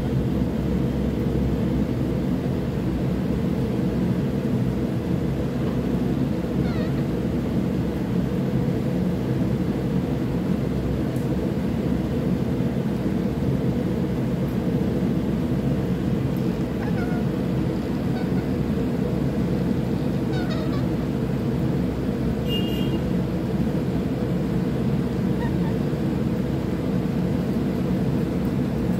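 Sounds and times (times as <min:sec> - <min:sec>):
loud steady low noise: 0:00.0 - 0:28.9
parakeet chirps: 0:06.6 - 0:07.1, 0:20.2 - 0:21.0, 0:25.4 - 0:25.8
parakeet high call: 0:06.6 - 0:07.2, 0:16.8 - 0:17.3, 0:18.1 - 0:18.6, 0:20.1 - 0:21.0, 0:25.4 - 0:25.8.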